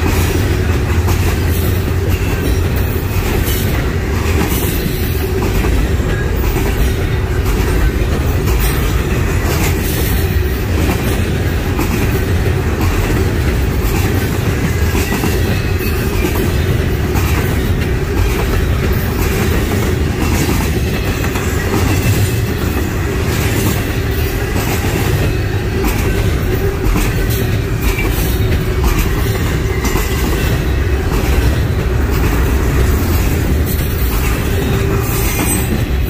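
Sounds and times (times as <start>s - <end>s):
clickety-clack over rail joints: 0.0s - 36.0s
train wheels rumbling on rail: 0.0s - 36.0s.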